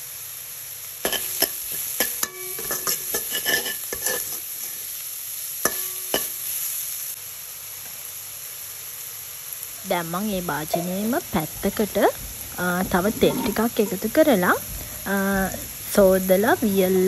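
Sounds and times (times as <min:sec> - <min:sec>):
onion frying sizzle: 0:00.0 - 0:17.0
metal spoon scraping a pan: 0:01.0 - 0:04.9, 0:05.7 - 0:06.4, 0:10.7 - 0:16.2.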